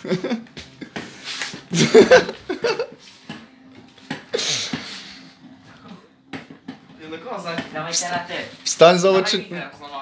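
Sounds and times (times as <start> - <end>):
boys laughing: 0.0 - 0.9, 1.7 - 3.0.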